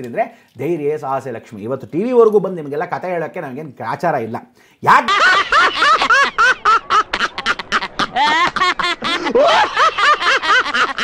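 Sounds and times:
men laughing hard: 5.0s - 11.0s.

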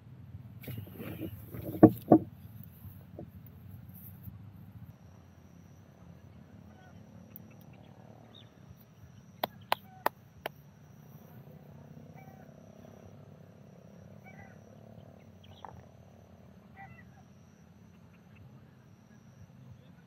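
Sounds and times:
frogs calling: 9.4s - 19.2s.

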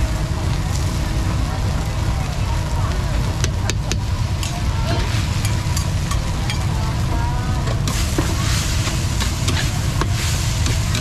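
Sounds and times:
faint voices: 0.0s - 11.0s
low traffic rumble: 0.0s - 11.0s
hiss: 7.7s - 11.0s.

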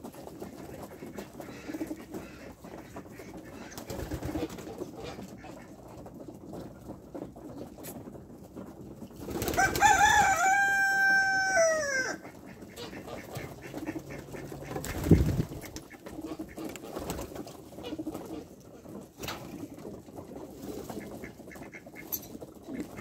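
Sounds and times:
pigeons shuffling: 0.0s - 23.0s
rooster crowing: 9.6s - 12.2s
pigeons cooing: 20.6s - 23.0s.

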